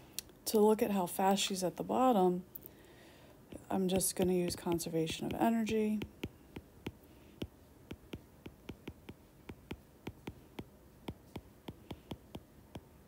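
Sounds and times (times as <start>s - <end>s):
stylus tapping on glass screen: 3.9s - 12.9s.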